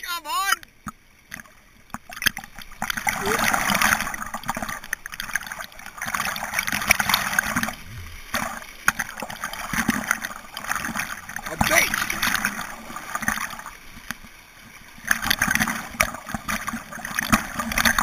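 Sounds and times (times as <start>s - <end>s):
water splashing on camera: 0.3s - 18.0s
river rapid rushing: 3.0s - 4.3s.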